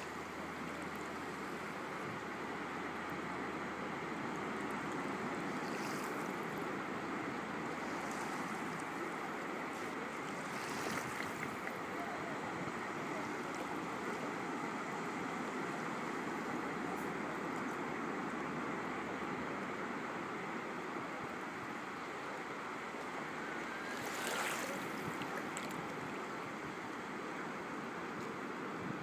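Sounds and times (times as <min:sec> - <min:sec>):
faint water splashes: 0:00.0 - 0:18.6, 0:21.3 - 0:26.9
shallow water lapping: 0:04.5 - 0:12.0, 0:23.7 - 0:26.1.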